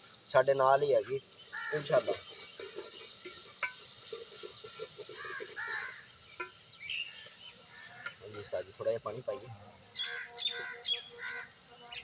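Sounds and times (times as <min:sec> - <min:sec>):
birds calling: 0:00.7 - 0:12.0
spoon scraping steel pot: 0:01.8 - 0:06.6.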